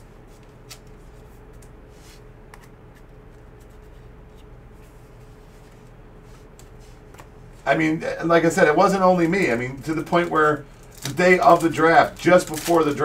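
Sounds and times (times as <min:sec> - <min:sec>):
steady low hum: 0:00.0 - 0:13.0
cards clicking and rustling: 0:09.9 - 0:13.0.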